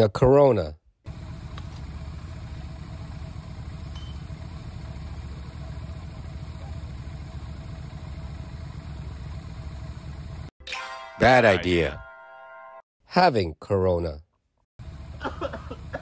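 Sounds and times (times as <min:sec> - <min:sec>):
motorcycle engine idling: 0:01.1 - 0:10.5.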